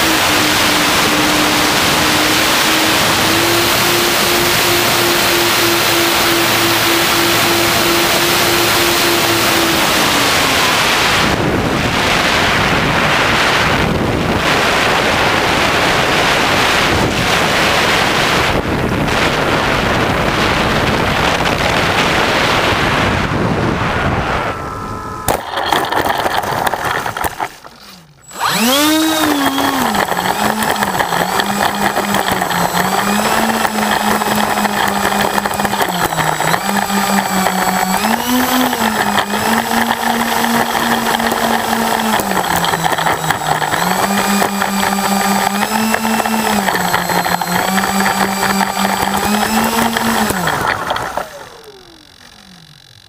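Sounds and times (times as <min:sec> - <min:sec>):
wind rushing over microphone: 0:00.0 - 0:25.3
electric motor whine: 0:00.0 - 0:53.0.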